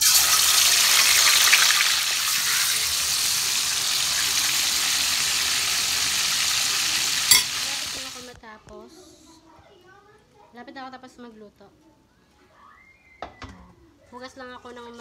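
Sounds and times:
chicken sizzling in hot oil: 0.0s - 8.4s.

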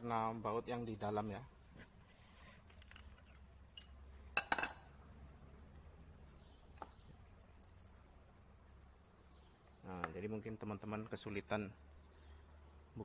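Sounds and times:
metallic clinks of tools: 3.8s - 4.9s.

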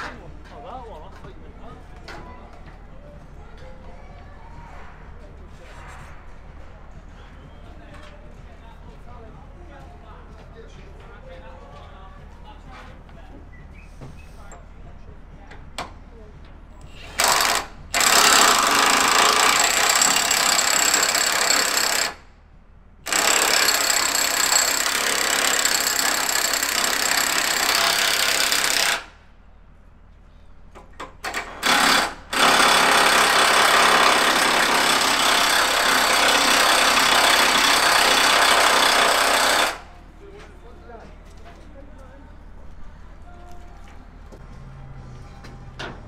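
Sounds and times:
impact wrench hammering on bolts: 17.0s - 22.2s, 23.1s - 29.1s, 31.2s - 39.9s.

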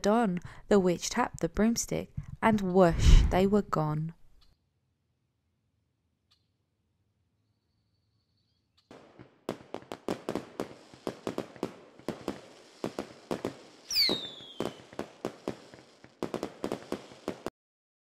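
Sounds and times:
fireworks popping and banging: 8.9s - 17.5s
high falling firework whistle: 10.3s - 15.8s.

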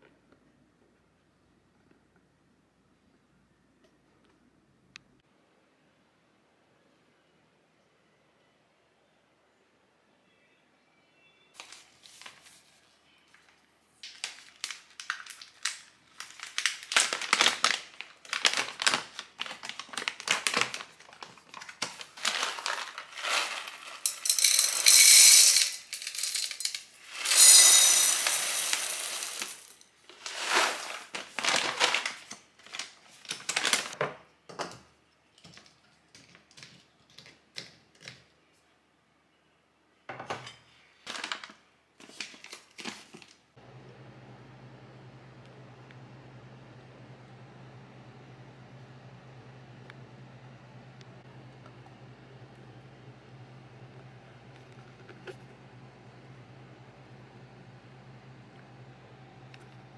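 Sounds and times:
foil bag crinkling: 14.0s - 24.2s, 27.1s - 34.0s, 41.0s - 43.4s
beans rattling: 15.1s - 32.8s
coffee beans clattering into glass jar: 22.2s - 32.0s.

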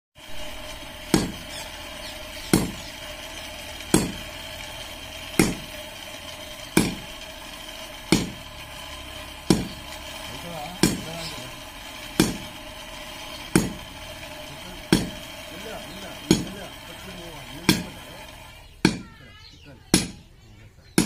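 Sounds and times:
sledgehammer striking anvil: 1.1s - 1.4s, 3.8s - 4.2s, 5.4s - 5.6s, 6.8s - 7.0s, 8.1s - 8.4s, 9.5s - 9.8s, 12.2s - 12.5s.

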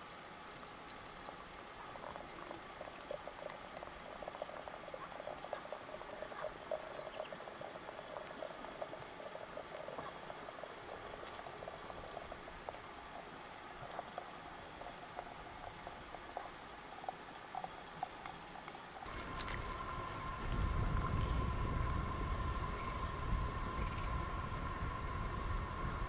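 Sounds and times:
water trickling into teapot: 0.6s - 26.0s
thin high buzz: 18.4s - 26.0s.

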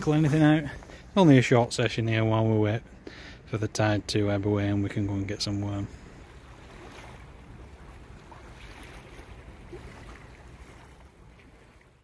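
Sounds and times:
wind: 0.0s - 12.0s
choppy river water rushing: 5.4s - 12.0s.

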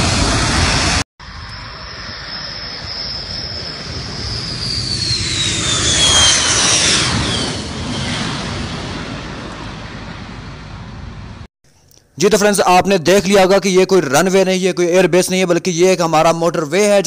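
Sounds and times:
fighter jet engine: 0.0s - 11.5s
high falling whistle: 0.8s - 8.2s.

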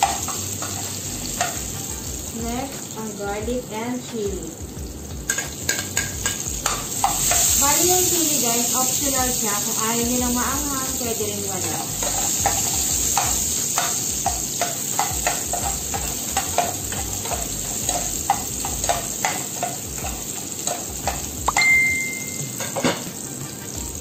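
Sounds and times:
spatula scraping and tapping pan: 0.0s - 1.6s, 5.3s - 7.6s, 11.6s - 23.2s
food sizzling in oil: 0.0s - 24.0s
short ringing ping: 21.5s - 22.6s.

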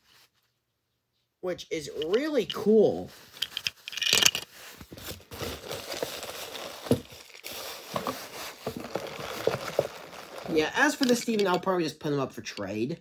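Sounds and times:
toy trains clicking and knocking: 1.9s - 2.8s, 3.4s - 4.5s, 10.8s - 11.7s
cloth rustling: 2.0s - 11.6s.

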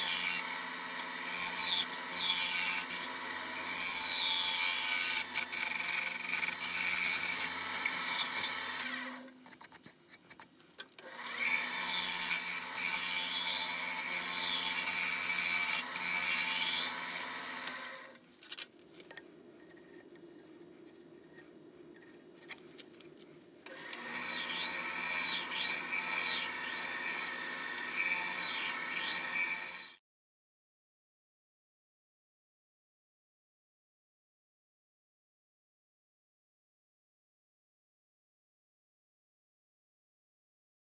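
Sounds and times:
gouge scraping wood on lathe: 0.0s - 10.5s, 11.2s - 18.2s.

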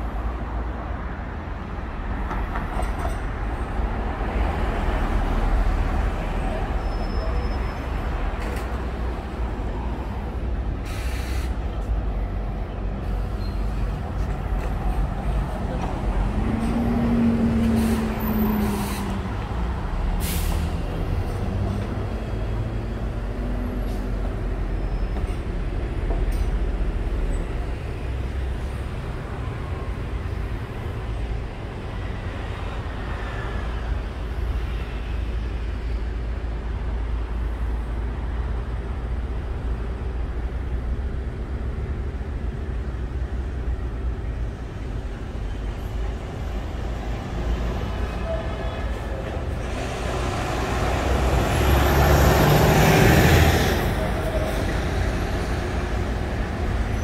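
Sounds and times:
traffic rumble: 0.0s - 57.0s
short hiss: 10.8s - 11.5s.

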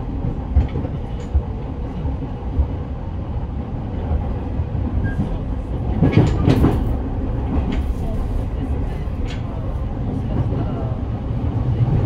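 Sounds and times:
train knocks and clatter: 0.0s - 12.0s
train wheels rumbling on rail: 0.0s - 12.0s.

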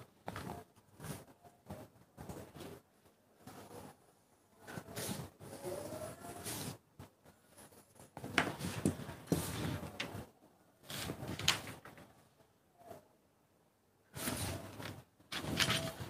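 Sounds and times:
paper rustling: 8.2s - 12.0s, 14.2s - 16.0s.

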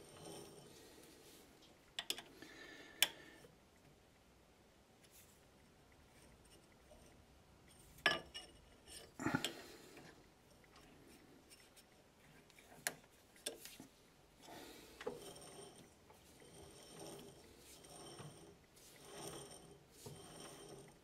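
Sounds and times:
metallic clicks and scrapes: 10.0s - 21.0s
lathe chuck rubbing: 14.4s - 21.0s.

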